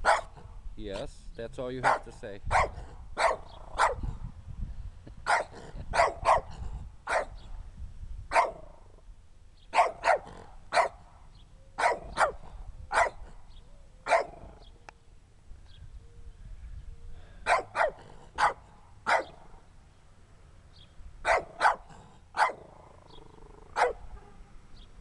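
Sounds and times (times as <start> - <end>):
small dog barking: 0.0 - 0.4, 1.8 - 4.1, 5.2 - 7.4, 8.3 - 8.7, 9.7 - 11.0, 11.8 - 13.3, 14.1 - 14.5, 17.4 - 19.5, 21.2 - 22.8, 23.7 - 24.4.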